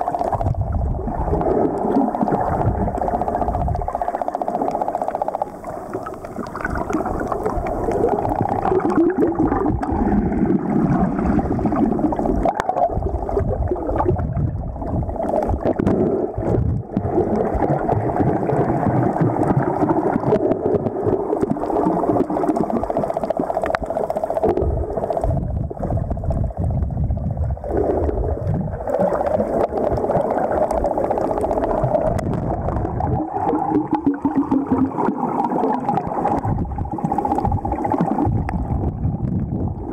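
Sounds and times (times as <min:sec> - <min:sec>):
underwater rushing and gurgling water: 0:00.0 - 0:39.9.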